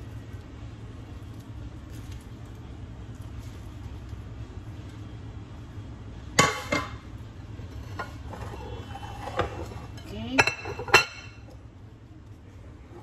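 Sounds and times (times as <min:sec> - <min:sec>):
low steady hum: 0:00.0 - 0:13.0
dishes and utensils clanking: 0:06.4 - 0:07.0, 0:07.6 - 0:11.6.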